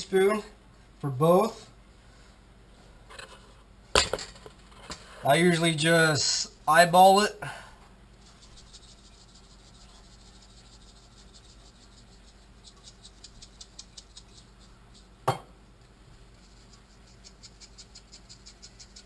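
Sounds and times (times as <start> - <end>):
shaker rattling: 8.2 - 15.2, 16.3 - 19.0
sharp knock: 15.3 - 15.5.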